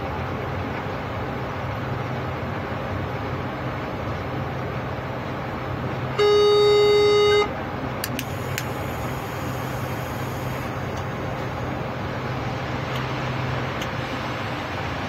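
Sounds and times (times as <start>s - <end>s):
locomotive horn: 6.2s - 7.6s
train running noise: 7.0s - 15.0s
sharp clicks: 8.0s - 8.8s.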